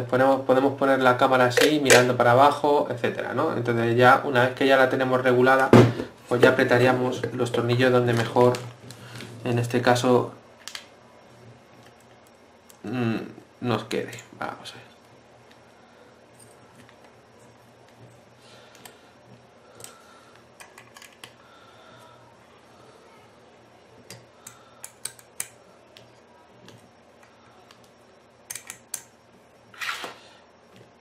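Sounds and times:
short scrape: 0:29.7 - 0:30.3.

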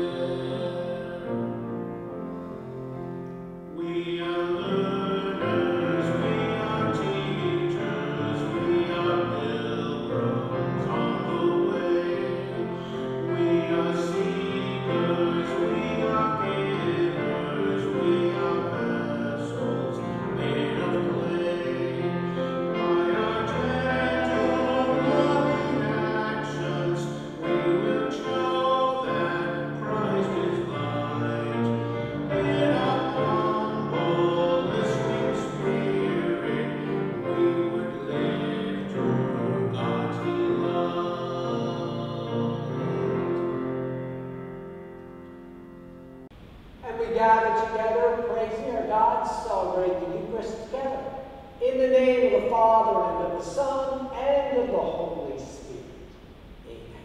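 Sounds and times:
voices singing a hymn: 0:00.0 - 0:44.8.

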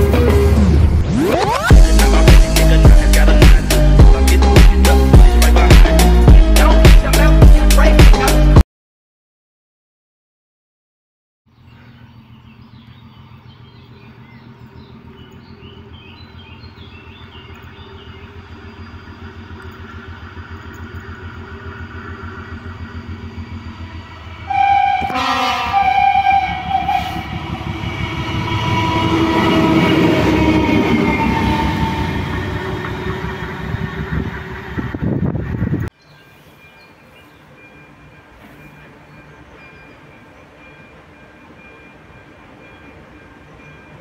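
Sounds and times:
diesel locomotive engine hum: 0:00.0 - 0:08.6, 0:11.5 - 0:44.0
locomotive horn: 0:24.3 - 0:34.9.

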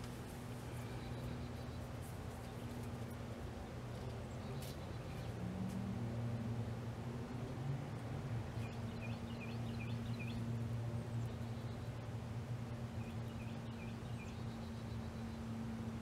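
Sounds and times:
steady low hum: 0:00.0 - 0:16.0
bird chirping: 0:08.6 - 0:12.0, 0:13.0 - 0:15.5.

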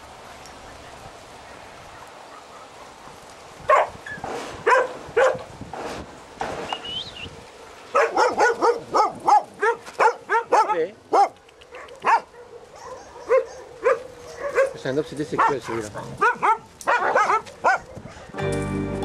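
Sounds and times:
dogs barking: 0:01.9 - 0:05.5, 0:07.6 - 0:18.4.

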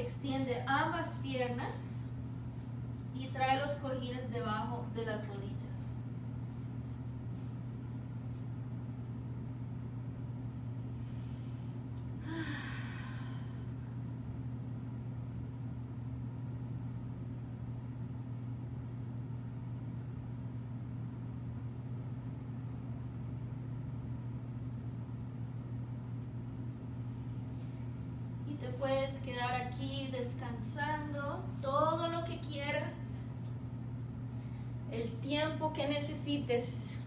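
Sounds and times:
steady low hum: 0:00.0 - 0:37.0
person sighing: 0:12.2 - 0:13.9.

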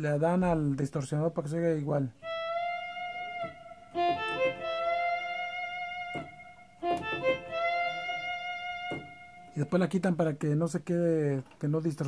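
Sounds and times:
electronic keyboard melody: 0:02.2 - 0:10.0.

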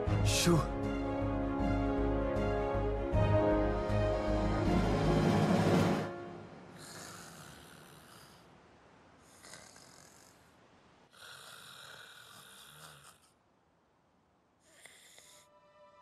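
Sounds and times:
cartoon snoring: 0:06.8 - 0:08.5, 0:09.2 - 0:10.5, 0:11.1 - 0:13.4, 0:14.7 - 0:15.5.

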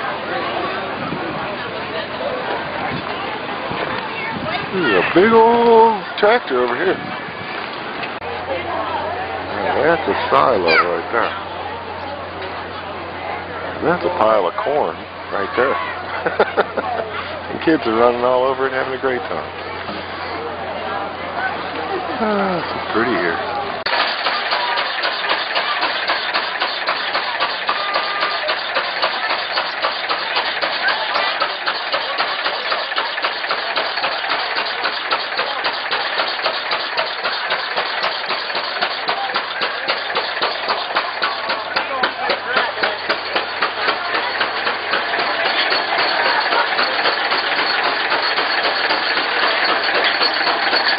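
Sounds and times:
stationary gas engine running: 0:22.2 - 0:50.9
rapid even engine knocking: 0:23.8 - 0:50.9.

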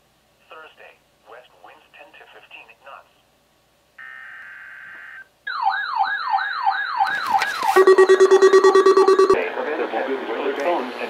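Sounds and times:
wavering siren-like alert alarm: 0:05.5 - 0:09.4
brief steady tone: 0:07.7 - 0:09.4
fast pulsing beep: 0:07.8 - 0:09.4.

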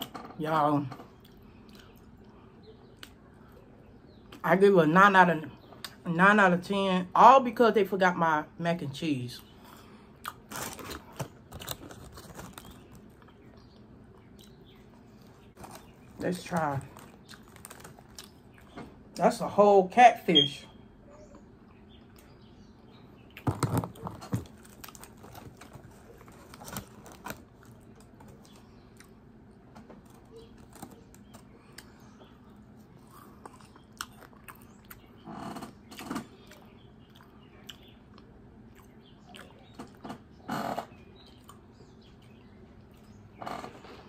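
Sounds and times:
chewing and mouth clicks: 0:01.1 - 0:03.6, 0:09.6 - 0:16.1, 0:16.9 - 0:18.8, 0:30.2 - 0:35.2, 0:35.9 - 0:40.0
crunchy bites of fried food: 0:09.6 - 0:19.0, 0:23.3 - 0:42.4.

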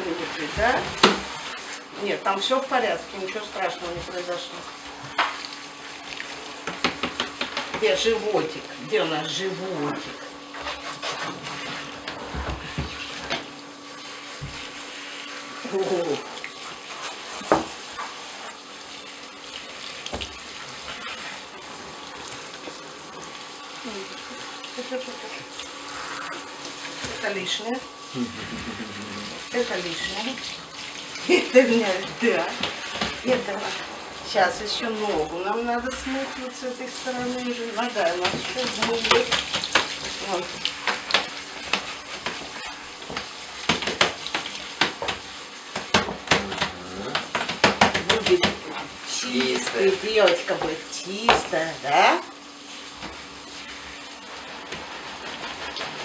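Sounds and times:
shower head spraying water: 0:00.0 - 0:56.0.

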